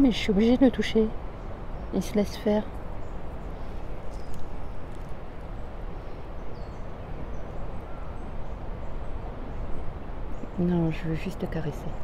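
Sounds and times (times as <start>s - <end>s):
faint bird chirps: 3.0s - 10.7s.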